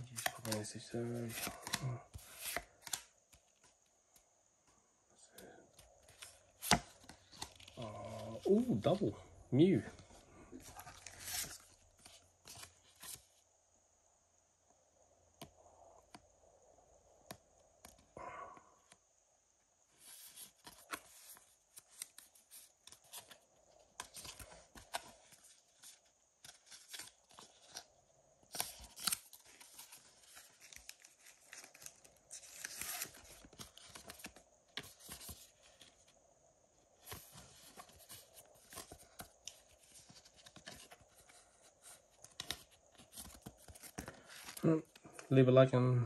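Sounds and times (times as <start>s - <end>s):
cards sliding into plastic sleeves: 0.0s - 3.7s, 10.6s - 13.2s, 28.5s - 36.0s.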